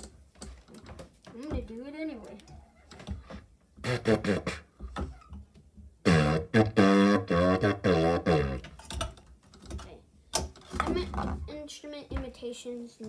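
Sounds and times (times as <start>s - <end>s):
hose horn brassy notes: 3.8s - 4.6s, 6.0s - 8.6s.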